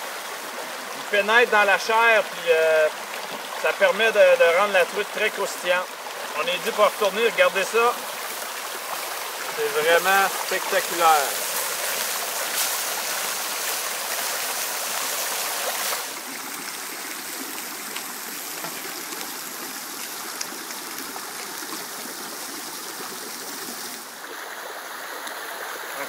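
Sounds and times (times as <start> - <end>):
brook rushing: 0.6 - 24.7
fish sizzling in a pan: 5.3 - 24.1.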